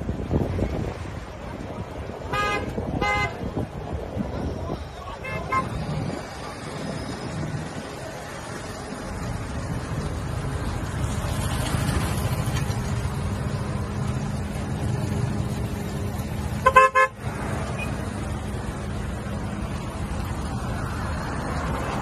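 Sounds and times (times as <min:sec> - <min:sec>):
low road noise rumble: 0:00.0 - 0:22.0
vehicle horn toots: 0:02.3 - 0:03.4, 0:05.2 - 0:05.8, 0:16.6 - 0:17.2.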